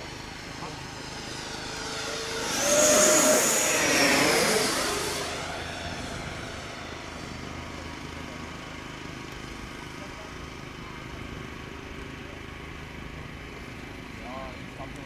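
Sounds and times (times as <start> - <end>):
model jet fan whining past: 0.0 - 10.3.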